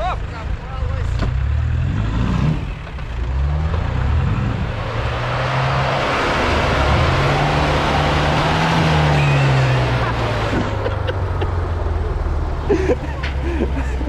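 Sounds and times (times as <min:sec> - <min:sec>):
engine revving hard: 0:01.3 - 0:10.9
rushing noise: 0:04.0 - 0:10.9.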